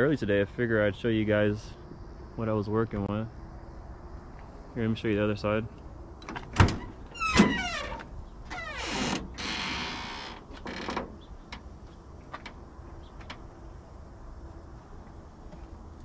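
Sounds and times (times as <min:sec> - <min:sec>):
metal door creaking: 0:06.2 - 0:11.6.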